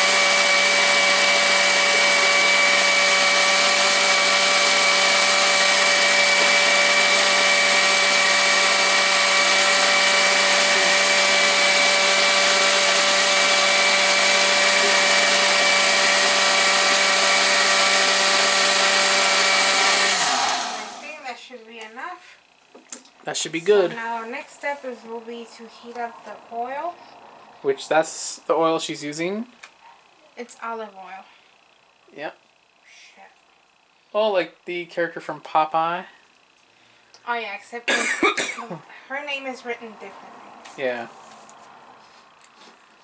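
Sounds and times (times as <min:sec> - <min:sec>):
electric blender running: 0:00.0 - 0:21.4.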